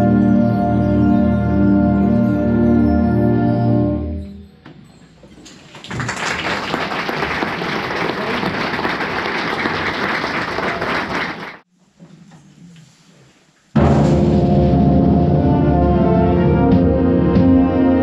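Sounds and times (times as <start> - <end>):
audience applauding: 5.5 - 11.6.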